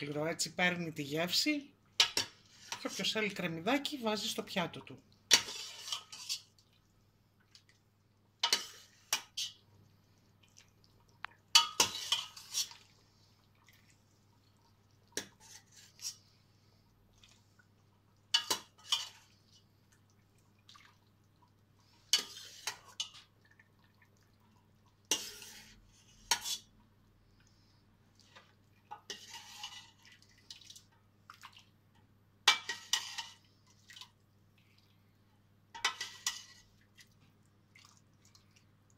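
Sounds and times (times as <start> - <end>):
soup splashing and dripping: 5.0 - 35.1, 35.7 - 38.9
metal ladle scraping a pot: 5.3 - 6.5, 8.4 - 9.6, 11.6 - 12.8, 15.2 - 16.2, 22.1 - 23.2, 25.1 - 26.7, 28.9 - 30.0, 32.5 - 33.4, 35.8 - 36.6.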